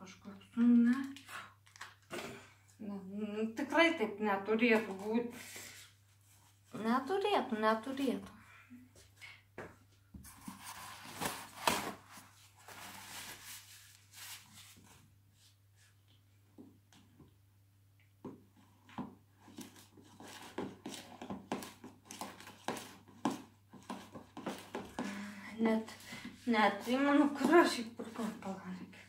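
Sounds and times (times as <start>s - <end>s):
close rustling handling noise: 10.2s - 16.0s, 18.6s - 25.0s
spoon stirring in plastic bowl: 18.6s - 25.1s.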